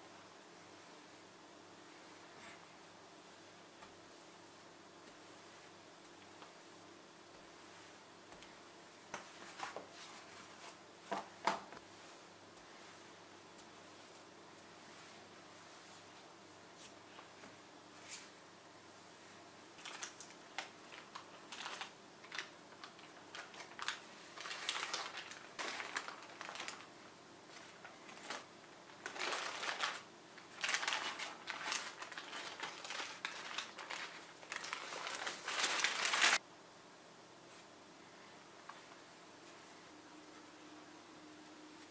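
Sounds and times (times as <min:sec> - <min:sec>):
paper wrapping crinkling: 0:19.8 - 0:36.4.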